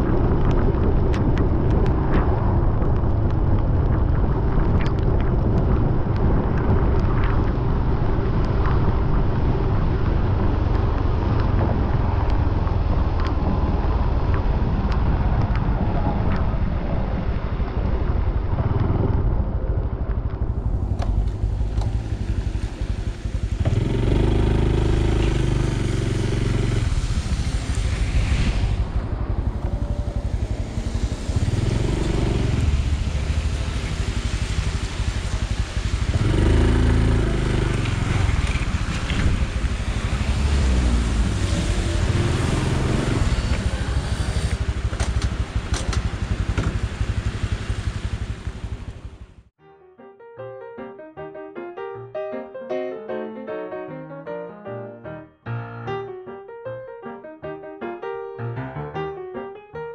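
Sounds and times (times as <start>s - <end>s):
motorcycle engine accelerating: 18.2s - 49.5s
tyres hissing on wet road: 20.8s - 49.4s.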